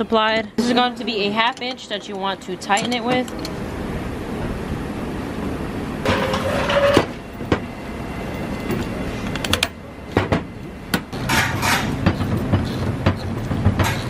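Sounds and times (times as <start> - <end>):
metal parts clicking and knocking: 8.6 - 10.3, 11.1 - 14.0.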